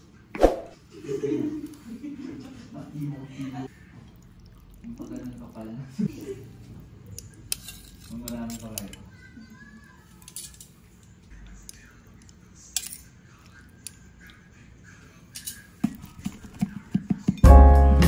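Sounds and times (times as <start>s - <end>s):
metal utensils scraping ceramic plate: 7.5s - 9.0s
music: 17.3s - 18.0s.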